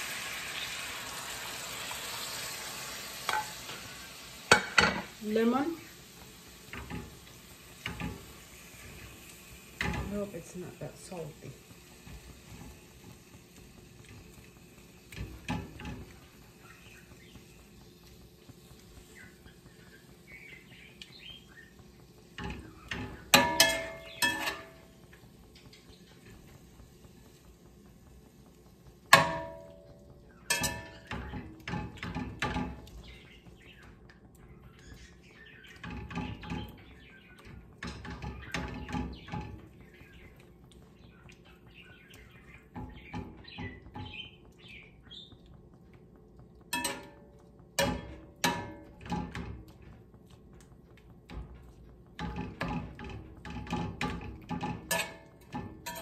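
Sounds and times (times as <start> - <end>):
metal spatula clanking on pan: 3.3 - 3.8, 4.5 - 5.1, 7.8 - 8.3, 9.8 - 10.3, 22.4 - 24.9, 29.1 - 32.9, 46.7 - 49.9, 52.2 - 56.0.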